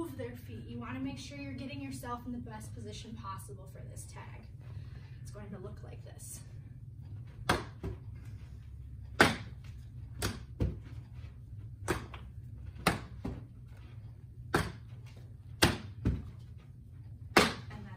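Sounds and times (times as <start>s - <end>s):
steady low hum: 0.0s - 17.9s
balls smacking into a glove: 7.4s - 8.0s, 9.2s - 10.9s, 11.8s - 13.5s, 14.4s - 16.4s, 17.3s - 17.8s.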